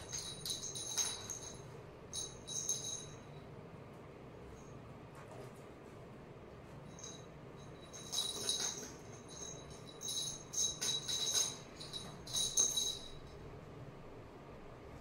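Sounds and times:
cat toy bell jingling: 0.0s - 3.4s, 6.9s - 13.4s.

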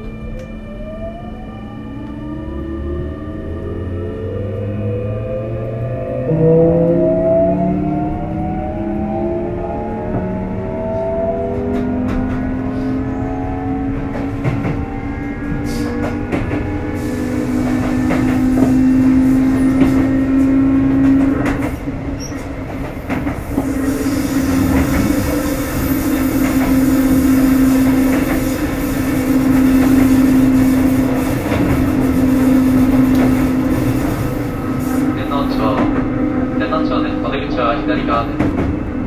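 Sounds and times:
train running gear rumble: 9.0s - 39.0s
electric train motor whining: 23.4s - 34.7s.

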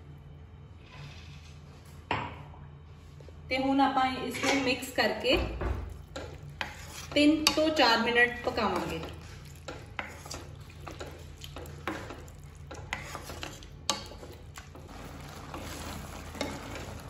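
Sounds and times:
spatula scraping a wok: 0.8s - 1.7s, 6.1s - 17.0s.

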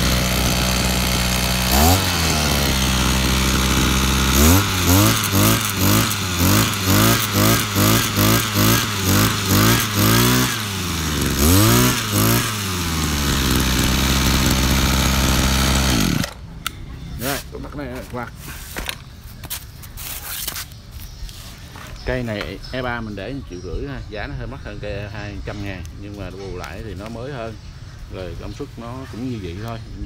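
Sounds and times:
brush cutter engine revving: 0.0s - 18.6s.

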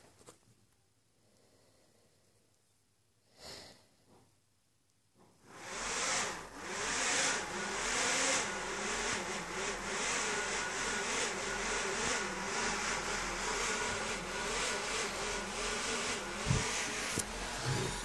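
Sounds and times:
electric motor whirring: 5.5s - 18.0s.

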